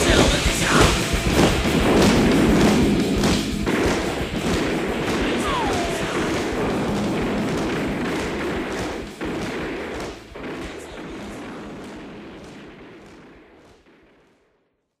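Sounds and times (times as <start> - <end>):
marching boots stamping: 0.0 - 10.8.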